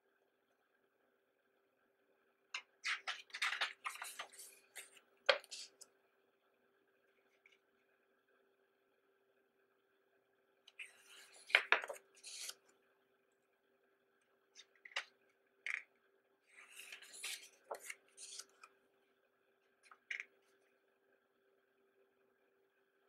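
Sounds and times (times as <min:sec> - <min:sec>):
paper pages turning: 0:02.9 - 0:05.8, 0:10.8 - 0:12.6, 0:16.5 - 0:18.6.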